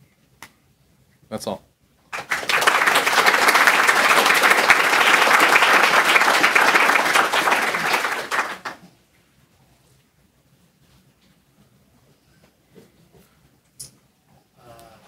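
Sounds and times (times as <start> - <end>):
audience applauding: 2.1 - 8.9.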